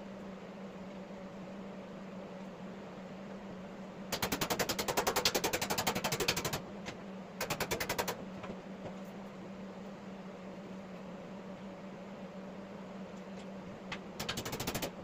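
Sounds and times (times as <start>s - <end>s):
rapid mechanical rattle: 4.1s - 6.6s, 7.4s - 8.2s, 14.2s - 15.0s.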